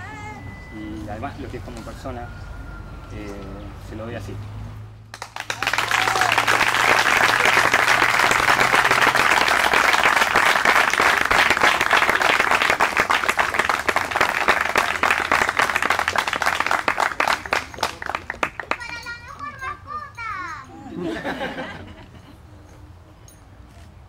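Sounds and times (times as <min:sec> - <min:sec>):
crowd applauding: 0:05.1 - 0:19.0.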